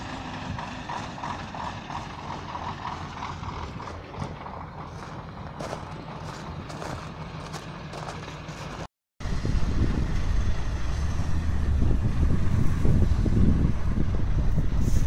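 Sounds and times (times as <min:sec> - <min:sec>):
heavy truck engine under load: 0:00.0 - 0:15.0
footsteps crunching through snow: 0:04.2 - 0:08.9.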